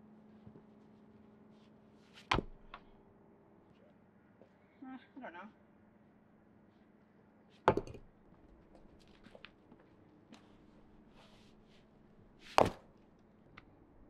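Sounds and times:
light scuffs and clicks: 0:00.3 - 0:02.3, 0:10.3 - 0:11.9
stones knocking together: 0:07.7 - 0:08.1.

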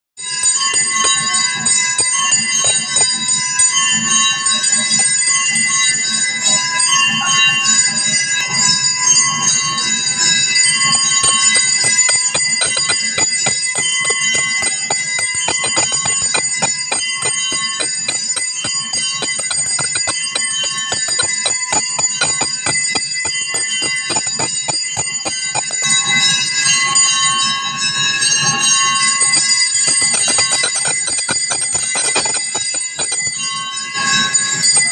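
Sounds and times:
temple bells ringing rapidly: 0:00.4 - 0:04.0, 0:10.6 - 0:26.2, 0:29.0 - 0:33.7.

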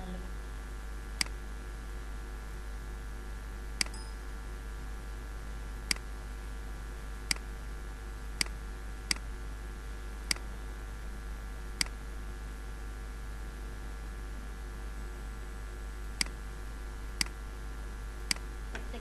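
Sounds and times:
low electrical hum: 0:00.0 - 0:19.0
computer mouse clicks: 0:01.2 - 0:01.4, 0:05.9 - 0:06.1, 0:08.4 - 0:09.2, 0:11.8 - 0:12.0.

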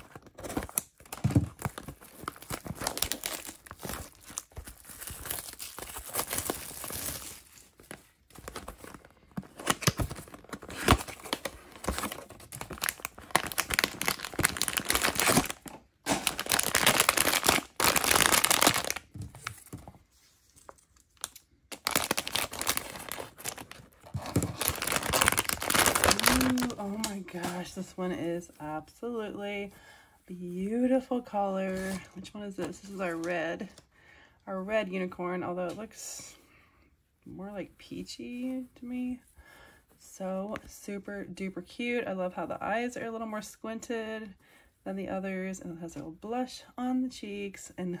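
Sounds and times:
crinkly plastic packaging crackling: 0:00.0 - 0:28.0.

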